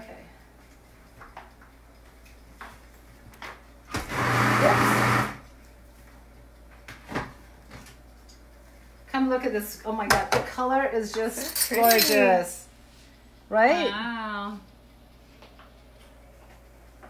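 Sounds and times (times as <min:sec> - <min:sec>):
food processor motor whirring: 0:03.9 - 0:05.4.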